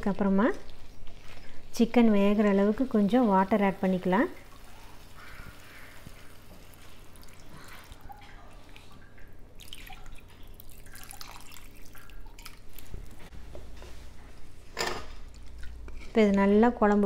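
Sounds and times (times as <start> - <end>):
water pouring and splashing: 3.8 - 13.3
wooden spatula stirring: 15.4 - 17.0.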